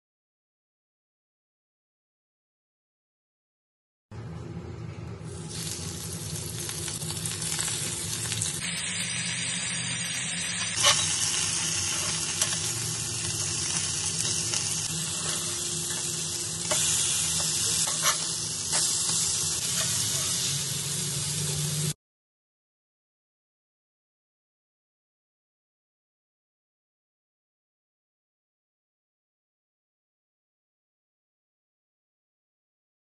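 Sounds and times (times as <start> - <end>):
fish sizzling in oil: 5.3 - 22.0.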